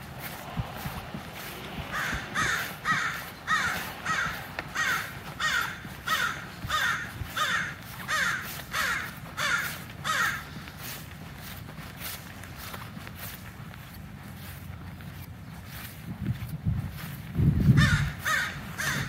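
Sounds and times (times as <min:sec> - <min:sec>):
crow cawing: 0:01.4 - 0:10.6, 0:17.8 - 0:19.0.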